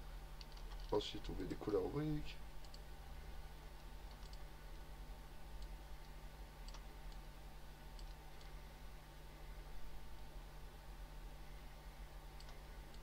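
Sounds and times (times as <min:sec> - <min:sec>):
low hum: 0:00.0 - 0:13.0
computer mouse clicks: 0:00.4 - 0:01.0, 0:02.6 - 0:02.9, 0:03.8 - 0:04.5, 0:05.6 - 0:07.3, 0:07.9 - 0:08.6, 0:12.4 - 0:13.0.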